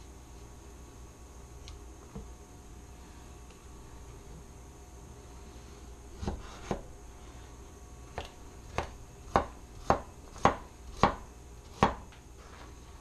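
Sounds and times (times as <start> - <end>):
knife chopping carrot on board: 6.2 - 6.9, 8.1 - 12.1.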